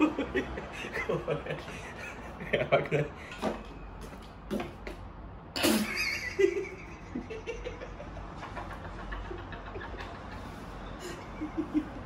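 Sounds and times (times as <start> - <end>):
man laughing: 0.0 - 3.2, 5.8 - 12.0.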